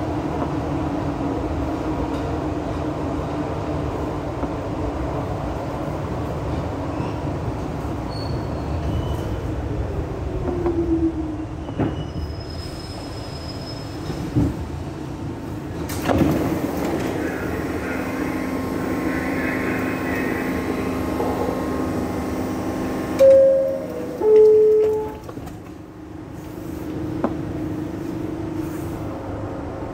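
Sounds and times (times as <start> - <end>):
subway car rumbling on rails: 0.0 - 29.9
steady hum: 17.0 - 24.2
two-note door chime: 23.2 - 25.2.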